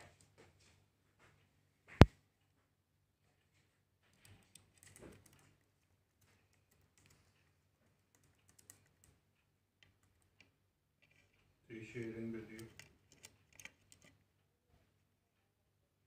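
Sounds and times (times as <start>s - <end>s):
bird claws and beak tapping: 4.1s - 14.2s.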